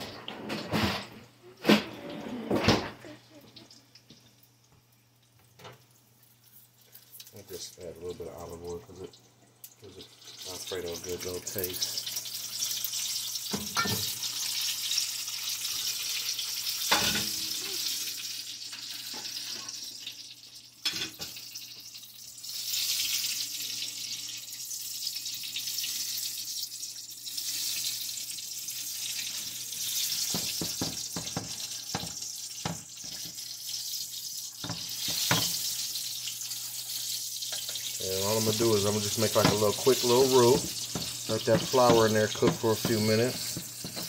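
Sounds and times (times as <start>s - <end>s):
roux sizzling in a frying pan: 1.4s - 44.0s
whisk scraping a pan: 38.5s - 44.0s.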